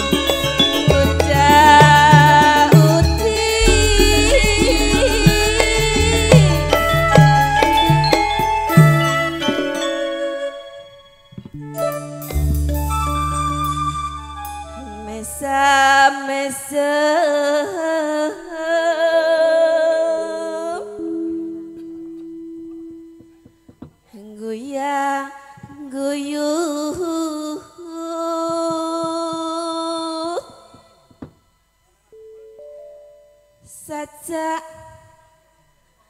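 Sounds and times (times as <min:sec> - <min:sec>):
woman singing into a microphone: 0:00.0 - 0:08.1, 0:14.8 - 0:21.8, 0:24.1 - 0:31.3, 0:33.6 - 0:35.5
electric keyboard: 0:00.0 - 0:15.7, 0:20.2 - 0:23.7, 0:32.1 - 0:33.6.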